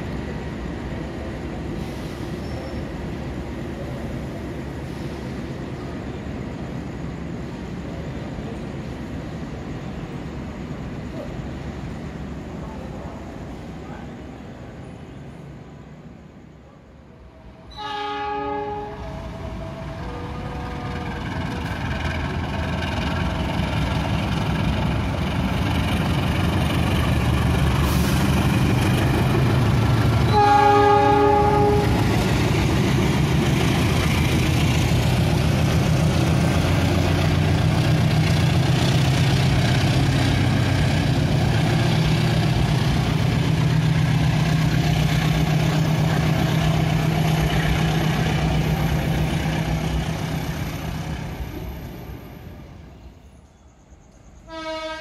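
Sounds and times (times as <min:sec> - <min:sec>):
diesel locomotive drone: 0:00.0 - 0:55.0
train horn blast: 0:17.3 - 0:21.2, 0:30.3 - 0:32.2, 0:54.4 - 0:55.0.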